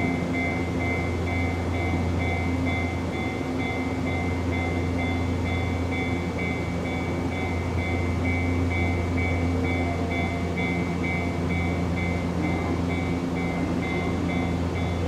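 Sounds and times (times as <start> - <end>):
electric train humming: 0.0 - 15.0.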